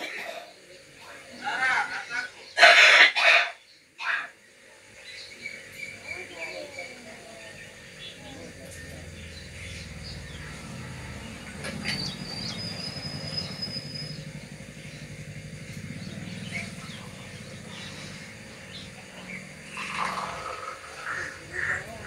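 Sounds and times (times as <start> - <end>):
drink being poured: 19.6 - 21.1.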